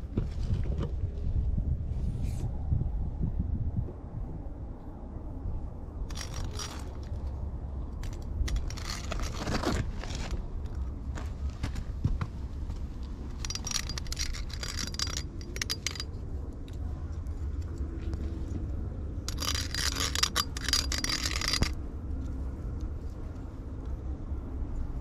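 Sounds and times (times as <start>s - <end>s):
low steady rumble: 0.0s - 25.0s
metal back scratcher scraping: 6.1s - 7.2s, 8.0s - 10.4s, 13.4s - 16.1s, 19.3s - 21.8s.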